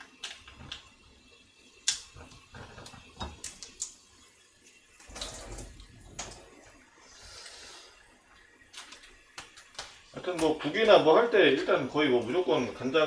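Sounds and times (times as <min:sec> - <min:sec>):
water splashing into sink: 0:05.0 - 0:06.6.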